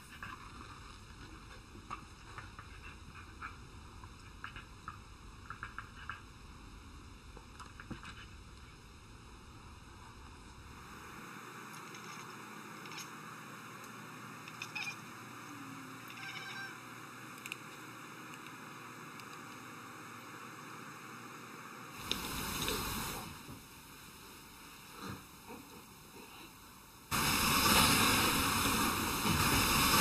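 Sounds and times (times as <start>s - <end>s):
cat chirping: 14.5s - 15.0s, 16.1s - 16.8s
steady hiss: 16.9s - 30.0s.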